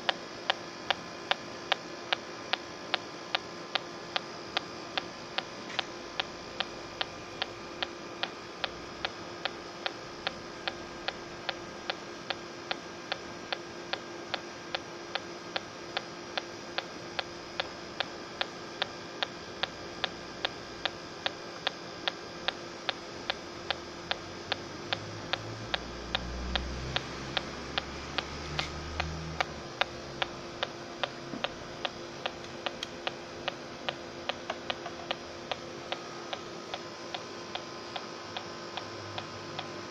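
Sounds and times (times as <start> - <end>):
leak detector ticking: 0.0 - 39.8.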